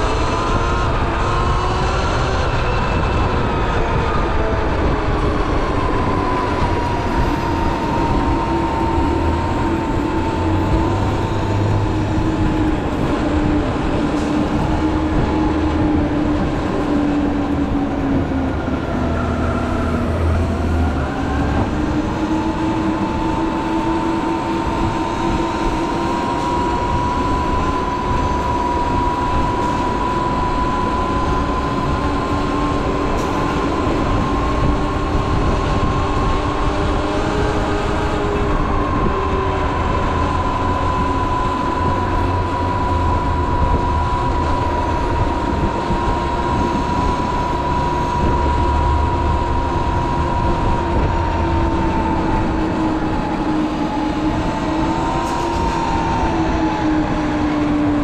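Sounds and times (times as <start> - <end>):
wind and tyre rumble: 0.0 - 58.0.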